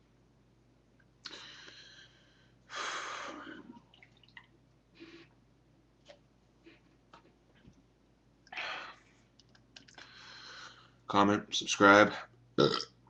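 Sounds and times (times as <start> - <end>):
man breathing noisily: 1.3 - 3.7, 10.0 - 11.0.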